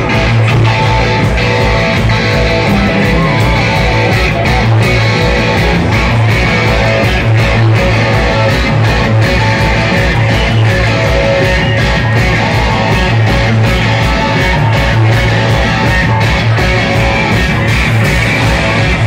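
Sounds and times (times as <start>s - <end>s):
rock band playing live: 0.0s - 19.0s.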